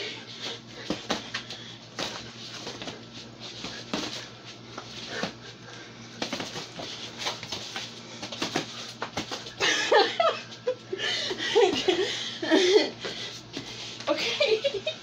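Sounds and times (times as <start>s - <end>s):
punches slapping and thudding: 6.2s - 9.6s.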